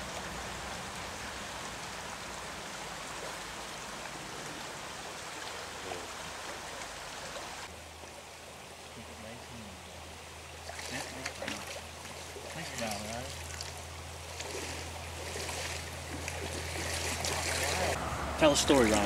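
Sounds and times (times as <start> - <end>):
stream rushing: 0.0 - 19.0.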